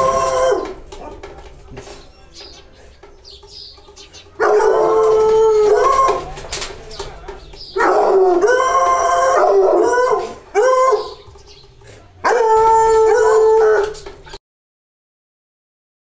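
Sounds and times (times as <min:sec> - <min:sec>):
dog howling: 0:00.0 - 0:01.2, 0:04.4 - 0:06.4, 0:07.7 - 0:11.3, 0:12.2 - 0:14.1.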